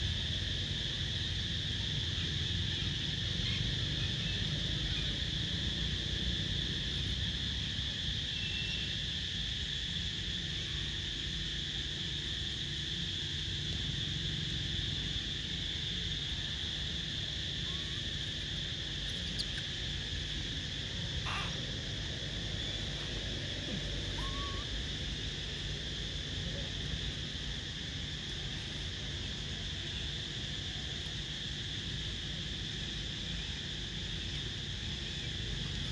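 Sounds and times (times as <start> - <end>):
high-pitched insect buzz: 17.0 - 25.3.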